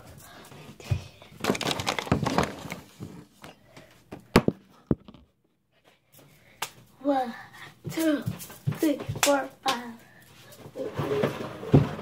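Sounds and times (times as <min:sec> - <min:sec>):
phone rustling and bumping: 0:04.4 - 0:05.3.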